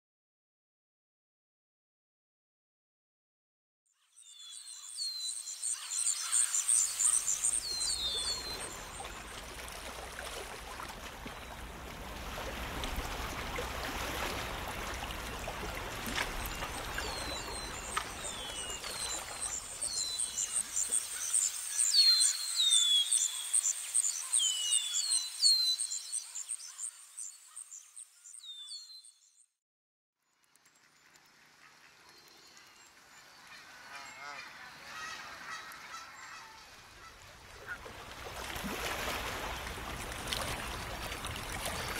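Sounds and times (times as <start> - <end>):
birds chirping: 4.0 - 9.8, 16.0 - 29.4.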